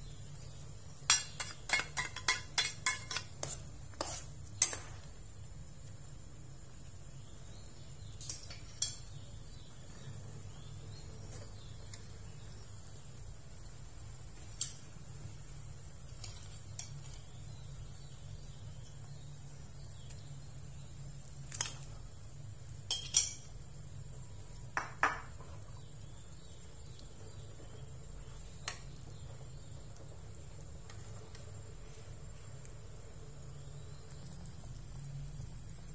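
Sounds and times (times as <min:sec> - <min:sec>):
spoon clinking on wok: 0:01.1 - 0:03.3.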